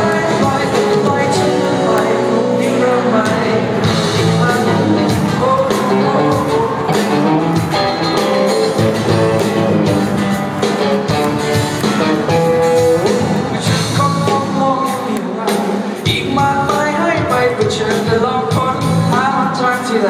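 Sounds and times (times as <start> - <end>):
male singer: 0.0 - 7.6, 12.4 - 20.0
acoustic guitar: 0.0 - 20.0
drums: 0.0 - 20.0.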